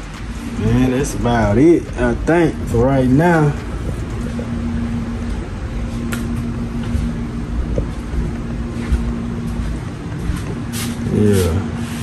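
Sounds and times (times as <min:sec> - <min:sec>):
car engine idling: 0:00.0 - 0:11.5
air conditioning hum: 0:00.0 - 0:12.0.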